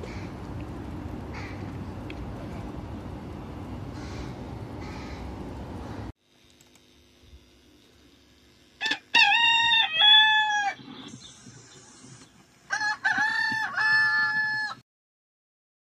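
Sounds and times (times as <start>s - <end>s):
rooster crowing: 8.8s - 10.8s, 12.7s - 14.8s.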